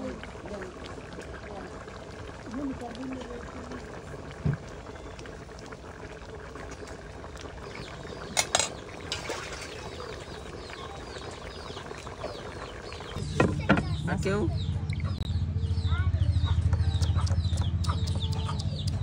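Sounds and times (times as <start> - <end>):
curry bubbling in a pan: 0.0 - 13.4
sharp clicks: 16.7 - 19.0.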